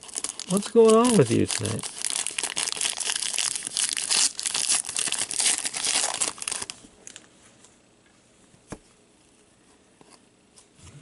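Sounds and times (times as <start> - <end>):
foil wrapper crinkling and tearing: 0.0 - 7.2.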